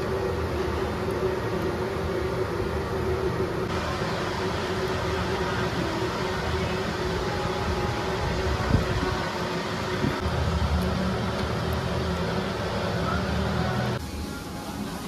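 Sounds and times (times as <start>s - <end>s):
mechanical hum: 0.0s - 15.0s.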